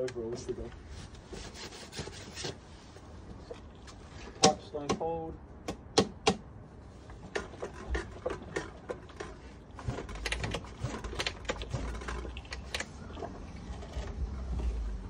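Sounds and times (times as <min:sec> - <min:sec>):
low rumble: 0:12.2 - 0:15.0.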